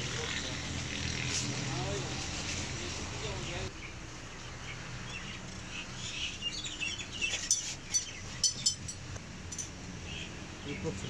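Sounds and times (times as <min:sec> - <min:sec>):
small birds chirping: 0:03.2 - 0:09.0, 0:10.0 - 0:11.0.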